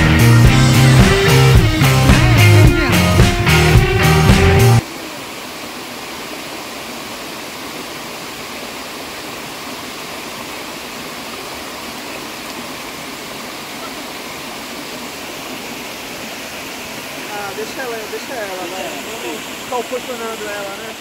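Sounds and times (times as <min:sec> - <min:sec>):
water rushing over rocks: 0:04.8 - 0:21.0.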